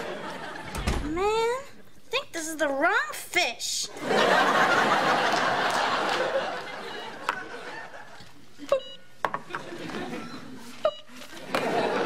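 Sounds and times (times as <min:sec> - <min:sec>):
audience laughing: 0:00.0 - 0:00.8, 0:03.9 - 0:08.8, 0:09.4 - 0:12.0.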